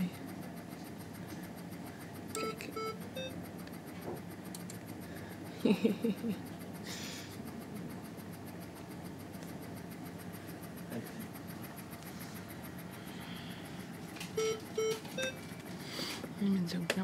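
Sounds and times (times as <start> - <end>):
low hum of medical equipment: 0.0 - 17.0
faint electronic monitor beep: 2.4 - 3.4, 14.4 - 15.4.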